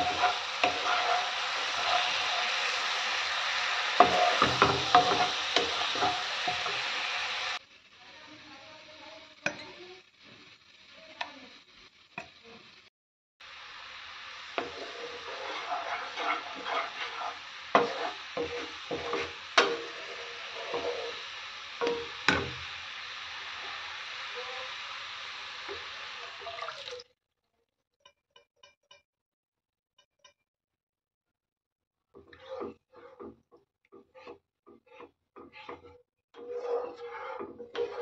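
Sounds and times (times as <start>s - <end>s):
spatula tapping pan: 0.0s - 3.0s, 3.8s - 7.1s, 14.6s - 21.2s, 21.8s - 22.7s, 36.6s - 38.0s
spatula scraping pan: 0.0s - 7.7s, 8.4s - 12.9s, 14.4s - 26.6s, 32.2s - 38.0s
spices sizzling in oil: 0.0s - 27.0s, 34.0s - 38.0s.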